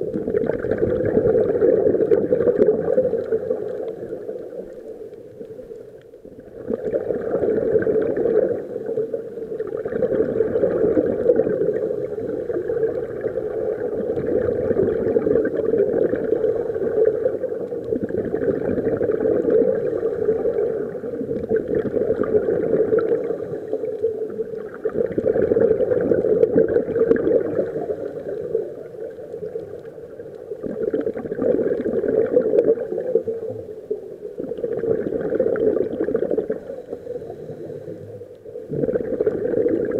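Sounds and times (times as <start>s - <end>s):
regulator bubbles gurgling underwater: 0.0s - 39.9s.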